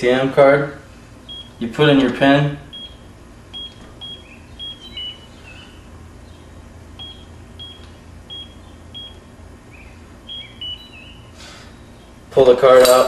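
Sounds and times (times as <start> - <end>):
lower wavering chirp: 2.6 - 12.3
keypad beeps: 2.7 - 5.2, 7.0 - 9.2, 10.3 - 11.0.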